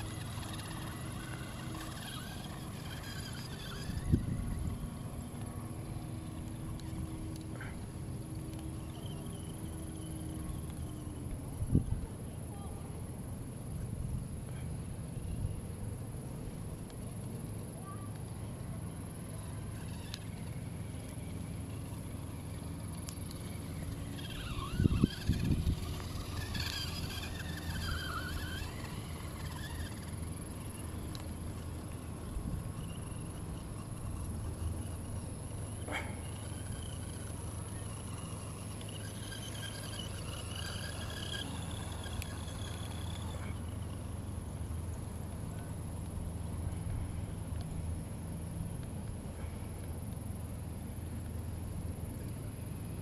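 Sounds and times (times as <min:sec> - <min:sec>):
toy truck electric motor whining: 0:00.0 - 0:11.7, 0:18.6 - 0:45.4
steady low hum: 0:00.0 - 0:53.0.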